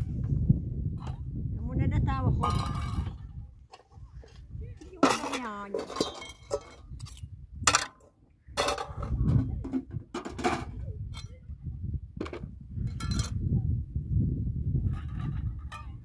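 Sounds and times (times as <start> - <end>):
pots and tray clattering: 5.0 - 6.8.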